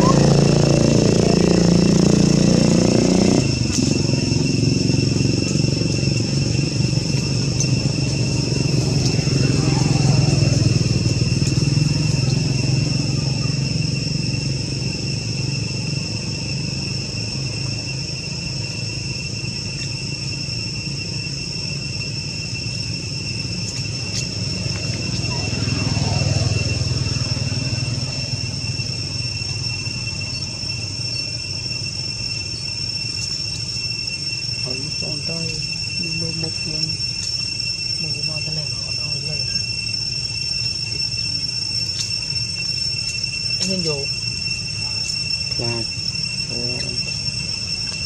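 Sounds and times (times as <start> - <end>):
motor vehicle rumble: 0.0 - 33.8
insect drone: 0.0 - 48.0.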